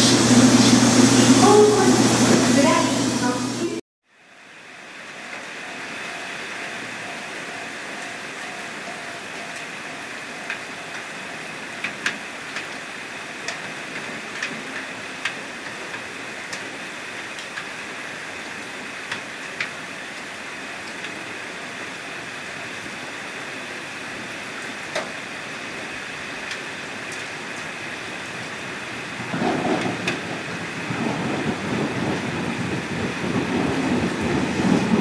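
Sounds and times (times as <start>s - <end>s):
steady rain hiss: 0.0s - 35.0s
raindrops ticking close by: 5.2s - 21.8s, 24.2s - 35.0s.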